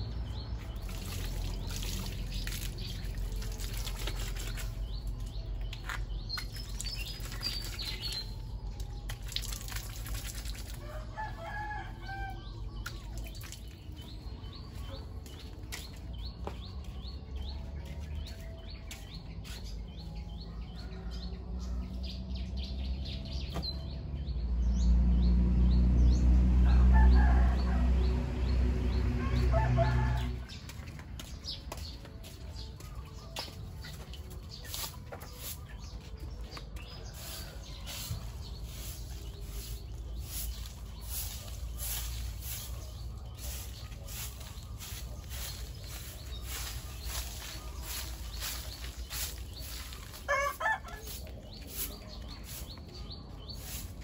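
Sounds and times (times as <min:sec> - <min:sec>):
small birds chirping: 0:00.0 - 0:26.2, 0:30.5 - 0:54.0
rooster crowing: 0:26.6 - 0:28.1, 0:29.2 - 0:30.5, 0:50.3 - 0:51.2.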